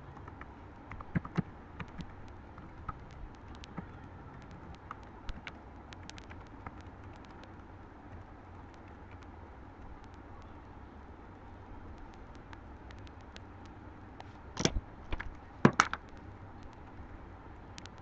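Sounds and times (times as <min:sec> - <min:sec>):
steady low hum: 0:00.0 - 0:18.0
keyboard keys clicking: 0:00.1 - 0:10.2.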